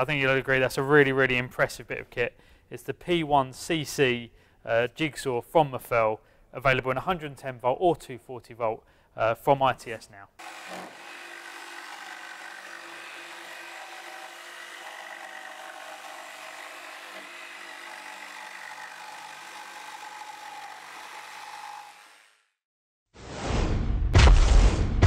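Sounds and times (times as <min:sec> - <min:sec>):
jigsaw cutting chipboard: 0:10.4 - 0:22.5
loud boom: 0:23.3 - 0:25.0.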